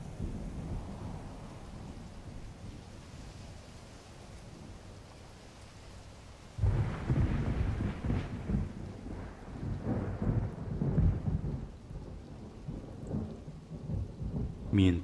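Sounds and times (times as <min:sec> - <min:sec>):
steady rain: 0:00.0 - 0:15.0
thunder rumbling: 0:06.6 - 0:15.0.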